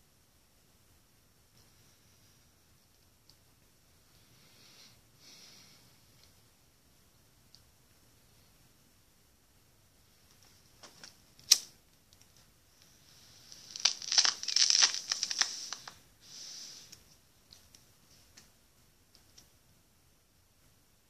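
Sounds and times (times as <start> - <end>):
smoke crackling and hissing: 12.7 - 17.1.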